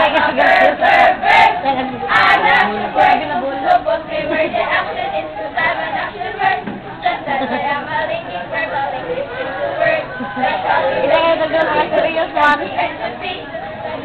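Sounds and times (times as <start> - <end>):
group chanting a cheer: 0.0 - 6.7.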